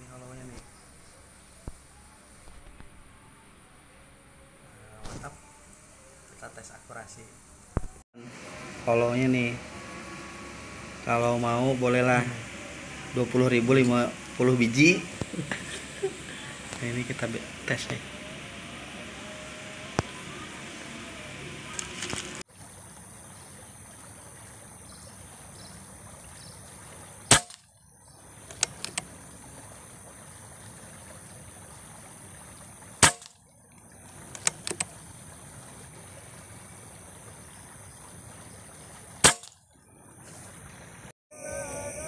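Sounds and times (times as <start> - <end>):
air rifle shots: 27.3 - 27.6, 33.0 - 33.4, 39.2 - 39.6
light clicks: 28.5 - 29.1.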